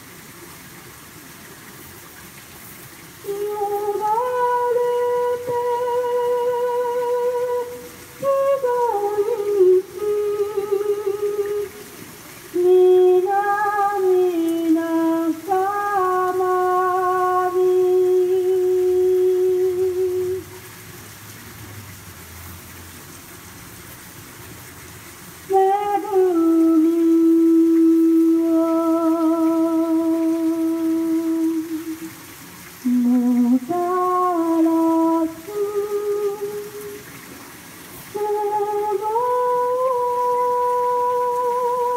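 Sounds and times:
woman singing unaccompanied: 3.2s - 20.6s, 25.5s - 32.2s, 32.8s - 37.2s, 38.0s - 41.9s.

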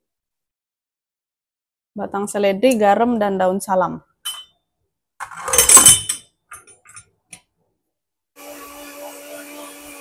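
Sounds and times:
electric blender running: 8.4s - 10.0s.

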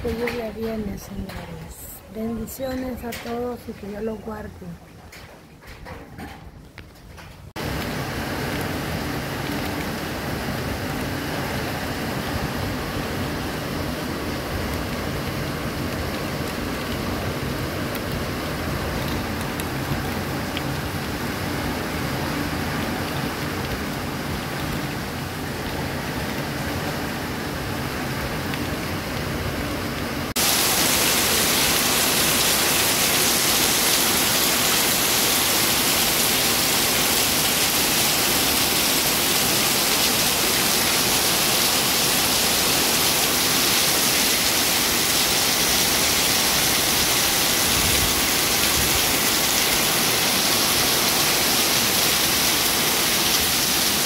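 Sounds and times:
heavy rain pouring: 7.5s - 54.0s.

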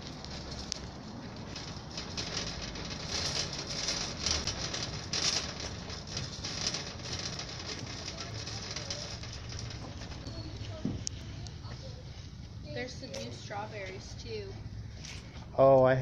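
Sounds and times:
shopping cart rattling on concrete: 0.0s - 12.1s.

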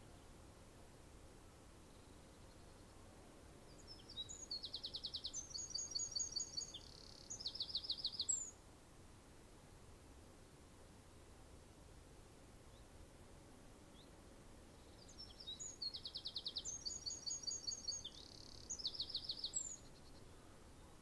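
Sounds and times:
songbird singing: 1.8s - 8.6s, 12.7s - 12.9s, 13.8s - 21.0s.

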